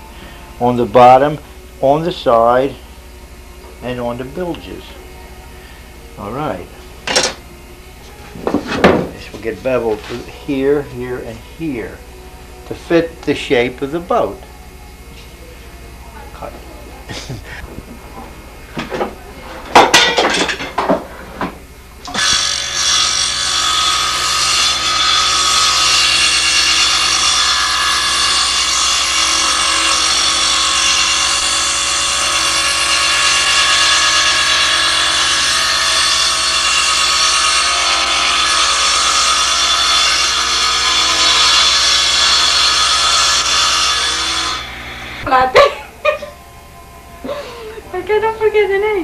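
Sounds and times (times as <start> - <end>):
woodworking power tool running: 22.0 - 45.4.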